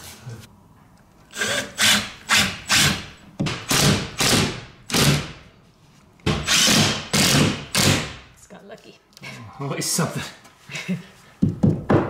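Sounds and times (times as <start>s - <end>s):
impact driver bursts: 1.4s - 5.4s, 6.3s - 8.2s.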